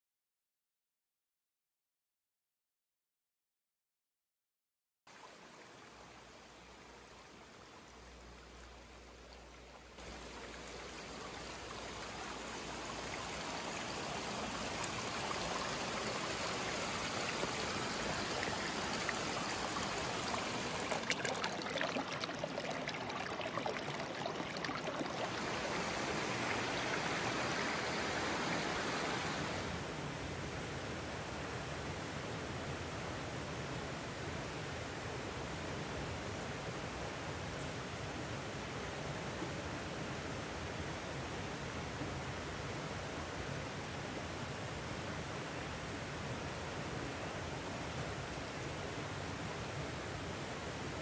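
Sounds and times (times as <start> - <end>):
stream running over rocks: 5.1 - 29.8.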